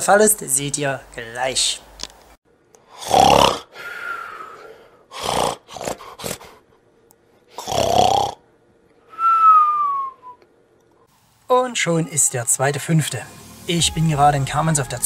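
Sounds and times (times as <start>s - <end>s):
short snorts: 2.9s - 6.6s
comic snoring with whistle: 3.0s - 6.5s, 7.6s - 8.4s.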